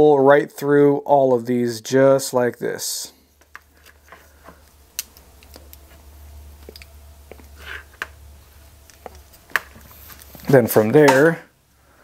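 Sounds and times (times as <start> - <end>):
low steady hum: 0.0 - 12.0
small handling clicks: 3.4 - 5.9.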